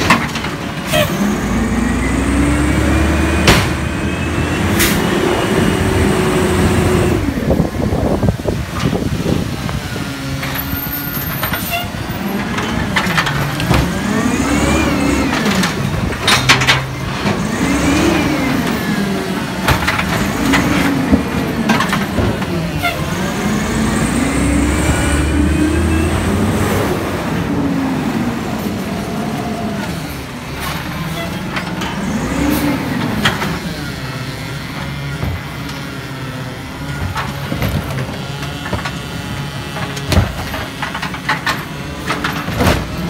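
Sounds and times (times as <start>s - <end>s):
carts clanking against truck: 0.0s - 1.5s, 10.4s - 24.2s, 36.6s - 43.0s
garbage truck engine revving: 0.0s - 43.0s.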